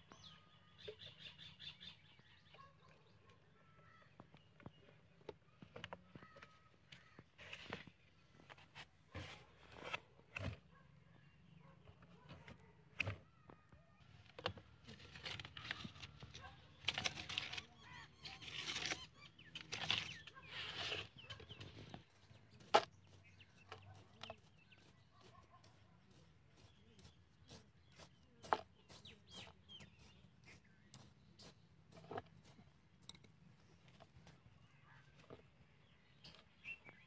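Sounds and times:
wooden stick scraping dry soil: 4.1s - 10.7s, 14.2s - 37.0s
hand rustling and scraping paper: 14.7s - 30.6s.

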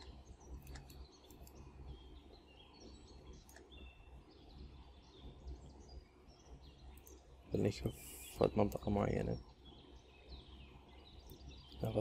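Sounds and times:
faint clicks: 0.0s - 1.6s, 2.8s - 3.8s, 6.9s - 7.2s
low hum: 0.0s - 12.0s.

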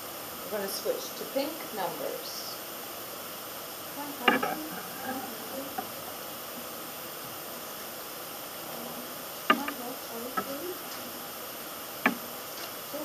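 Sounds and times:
background hiss: 0.0s - 13.0s
faint voice murmuring: 4.0s - 6.0s.

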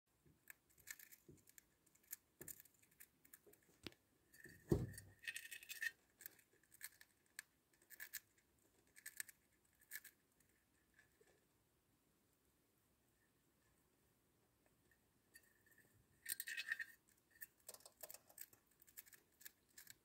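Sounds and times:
hamster crunching food: 0.3s - 11.4s, 16.2s - 20.0s
dull thump: 4.7s - 5.0s.

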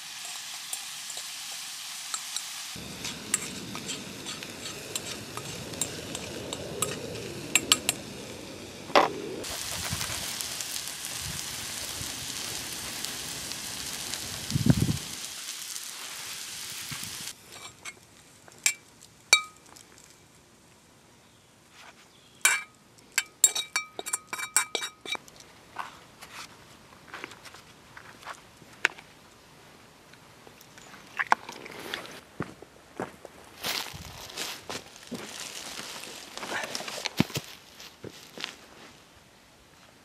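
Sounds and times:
frying pan sizzling: 0.0s - 18.0s
cutlery clinking on metal pan: 22.4s - 25.2s.

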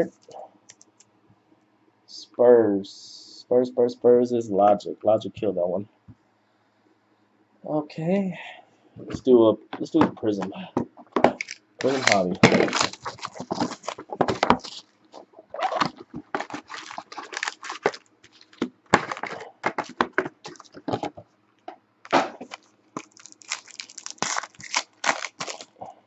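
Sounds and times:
foil packs crinkling: 11.3s - 21.1s, 22.1s - 25.8s.

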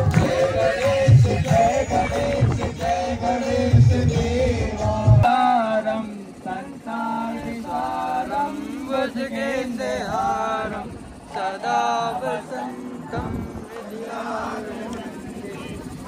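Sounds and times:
dj music with heavy bass beat: 0.0s - 5.3s
voices chanting long held notes: 0.0s - 16.0s.

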